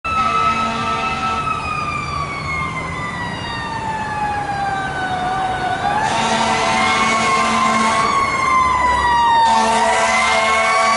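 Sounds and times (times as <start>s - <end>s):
fire engine siren wailing: 0.0s - 10.9s
traffic noise: 0.0s - 10.9s.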